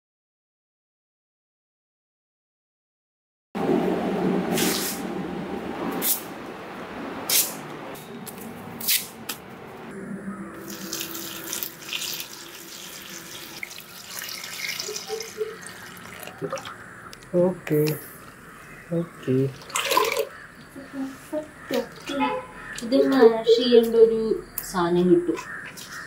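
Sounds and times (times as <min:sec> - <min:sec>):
water splashing into bucket: 0:10.6 - 0:16.8, 0:19.5 - 0:20.4.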